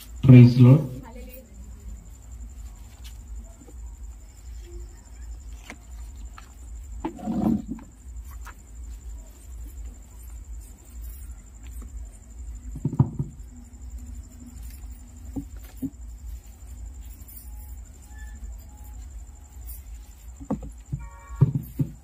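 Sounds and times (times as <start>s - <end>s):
book pages rustling: 5.4s - 6.7s, 8.2s - 9.4s
low thump: 12.7s - 13.4s.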